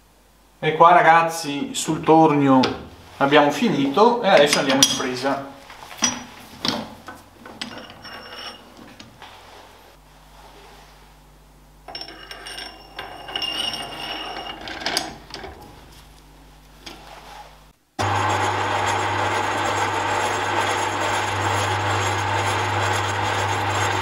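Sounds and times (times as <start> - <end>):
ringing metal clattering: 7.6 - 8.8, 11.9 - 15.5.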